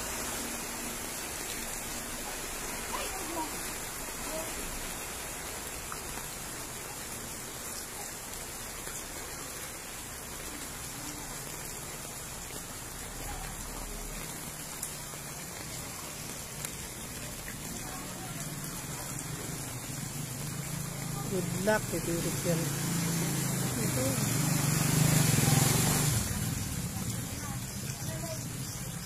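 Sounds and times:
rain on flooded street: 0:00.0 - 0:29.0.

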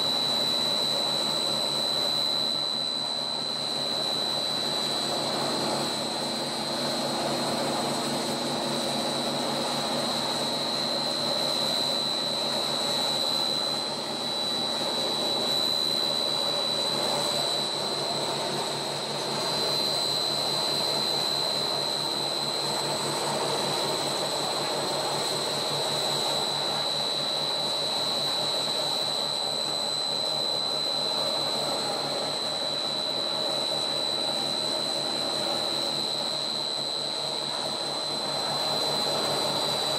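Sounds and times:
high-pitched whine: 0:00.0 - 0:39.9
motor and gearbox drone: 0:09.7 - 0:24.0.

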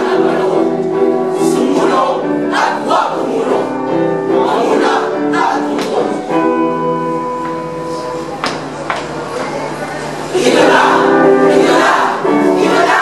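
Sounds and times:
boys' choir singing in unison: 0:00.0 - 0:06.4, 0:10.3 - 0:13.0.

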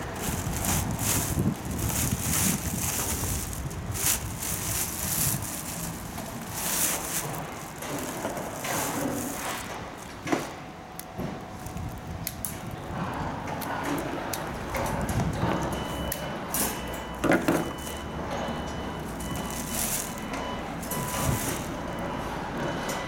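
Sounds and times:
wind rumble on microphone: 0:00.0 - 0:08.0, 0:11.3 - 0:16.2
plastic wrapping crinkling: 0:00.0 - 0:10.6, 0:11.2 - 0:12.8, 0:17.3 - 0:18.1, 0:19.0 - 0:22.1
small clicks of fan parts: 0:12.2 - 0:12.7.

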